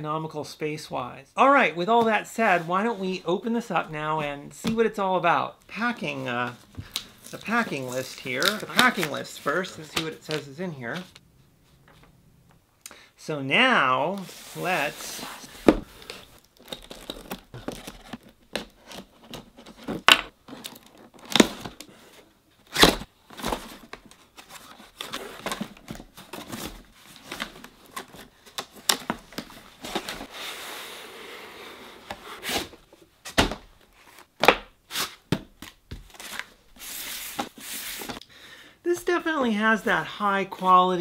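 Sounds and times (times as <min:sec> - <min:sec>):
cardboard tearing and rustling: 0:22.7 - 0:30.8.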